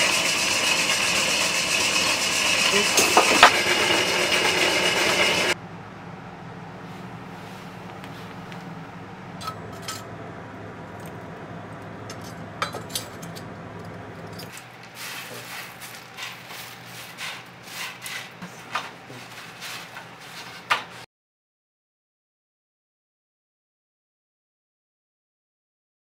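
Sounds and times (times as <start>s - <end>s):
coffee beans rattling in roaster drum: 0.0s - 5.6s, 12.0s - 21.0s
low steady hum: 5.6s - 14.6s.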